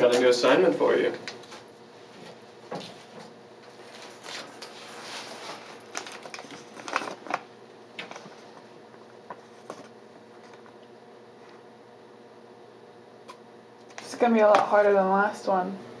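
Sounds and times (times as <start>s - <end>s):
soft handling rustles: 1.4s - 7.4s.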